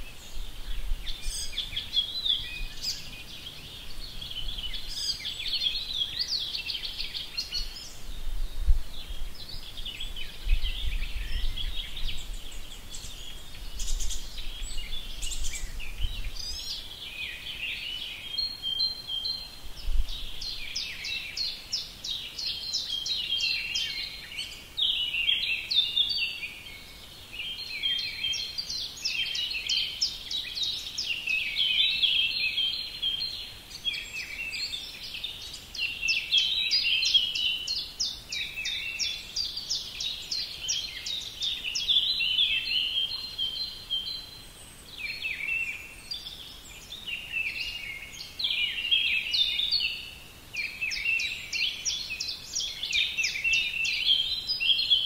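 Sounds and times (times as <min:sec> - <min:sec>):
small birds chirping and twittering: 0:00.0 - 0:55.0.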